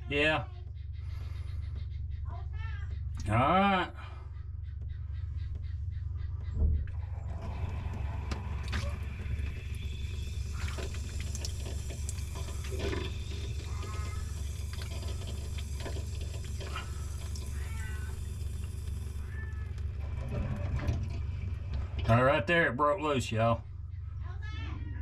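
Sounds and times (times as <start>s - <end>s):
drain gurgling and squeaking: 6.4s - 22.7s
water rumbling in pipes: 6.4s - 23.1s.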